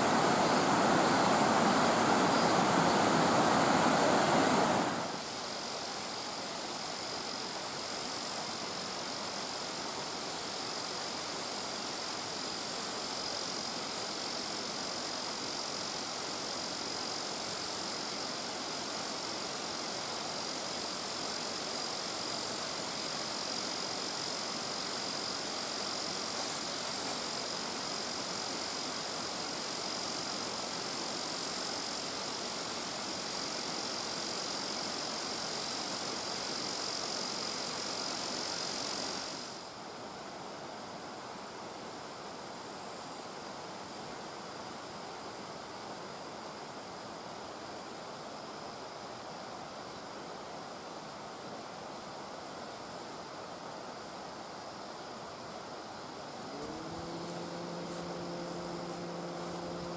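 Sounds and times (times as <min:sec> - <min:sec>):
water rushing over stone dam: 0:00.0 - 0:39.9
thin high-pitched whine: 0:56.0 - 0:59.9.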